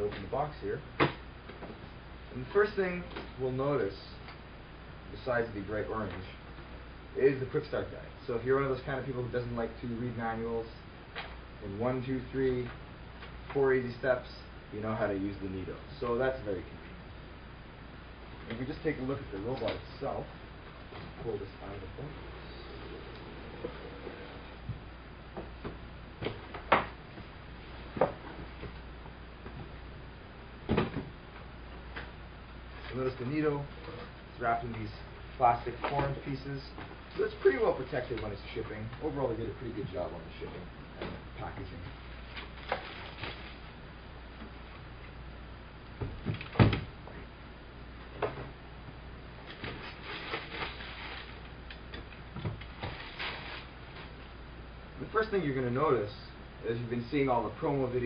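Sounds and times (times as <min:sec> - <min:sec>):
low steady hum: 0:00.0 - 0:58.0
cardboard and plastic packaging rustling: 0:42.0 - 0:43.8, 0:49.5 - 0:51.6, 0:52.5 - 0:54.3
plastic bag crinkling: 0:49.9 - 0:51.4, 0:52.8 - 0:53.8.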